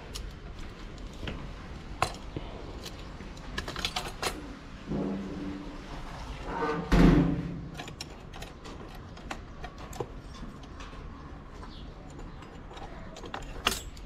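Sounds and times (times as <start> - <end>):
metal bolt clicks and taps: 12.0 - 14.0.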